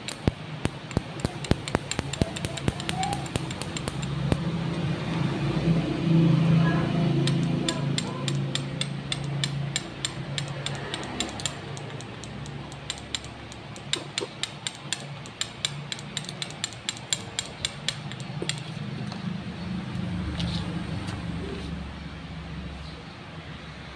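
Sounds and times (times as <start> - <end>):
spark plug snapping: 0.0 - 4.8, 7.2 - 18.7.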